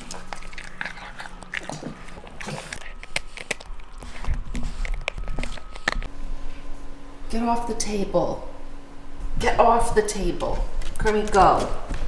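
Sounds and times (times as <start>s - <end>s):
dog chewing food: 0.0s - 6.1s.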